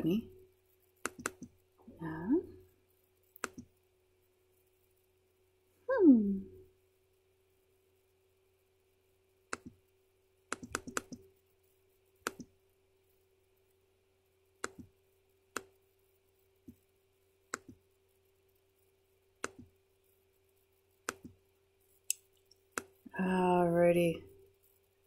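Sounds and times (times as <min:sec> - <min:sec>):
faint steady hum: 0:00.0 - 0:25.0
mouse and keyboard clicks: 0:01.0 - 0:01.5, 0:03.4 - 0:03.7, 0:09.5 - 0:09.8, 0:10.5 - 0:11.2, 0:12.2 - 0:12.5, 0:14.6 - 0:14.9, 0:17.5 - 0:17.8, 0:19.4 - 0:19.7, 0:21.0 - 0:21.4.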